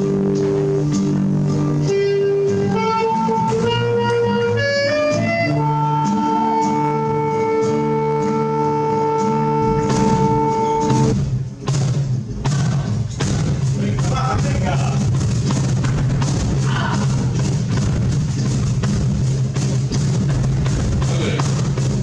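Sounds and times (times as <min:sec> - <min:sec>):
strummed flamenco guitar: 0:00.0 - 0:22.0
saxophone: 0:01.8 - 0:11.4.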